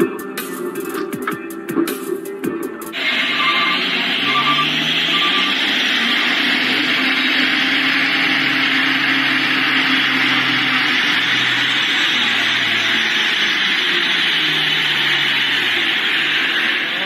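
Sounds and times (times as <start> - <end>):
truck diesel engine drone: 0.0 - 17.0
short high beeps: 3.3 - 5.6.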